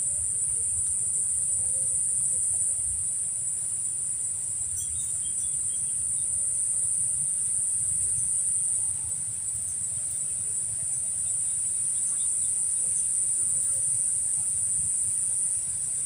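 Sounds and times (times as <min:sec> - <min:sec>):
insects trilling: 0:00.0 - 0:16.0.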